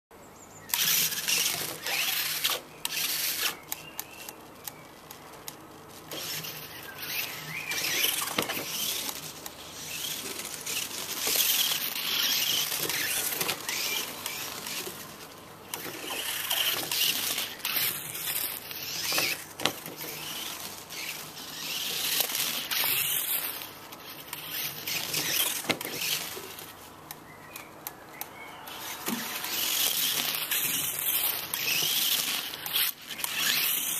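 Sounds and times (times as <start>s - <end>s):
small electric drivetrain whirring: 0.6s - 33.9s
tyres scrabbling on stone: 0.7s - 27.6s, 28.6s - 33.9s.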